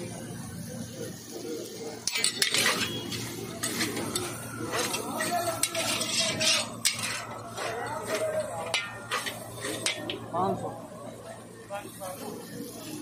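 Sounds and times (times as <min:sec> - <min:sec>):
metal spatulas scraping a wok: 0:02.0 - 0:10.3.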